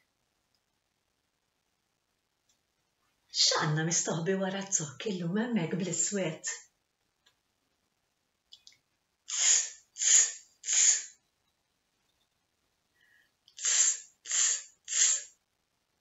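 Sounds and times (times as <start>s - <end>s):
woman making hissing sounds: 9.3s - 11.2s, 13.6s - 15.4s.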